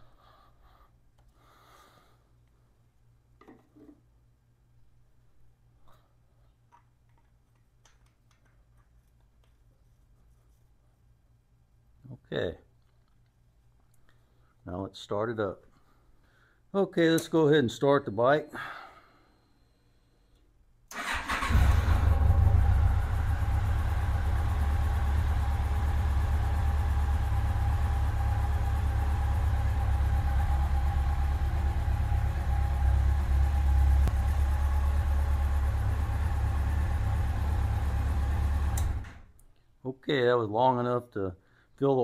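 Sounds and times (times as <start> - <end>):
motorcycle engine starting and idling: 20.9 - 39.3.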